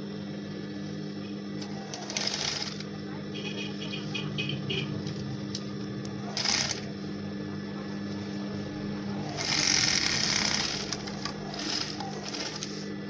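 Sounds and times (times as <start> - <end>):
sewing machine running: 1.6 - 2.9, 6.2 - 7.0, 9.0 - 12.9.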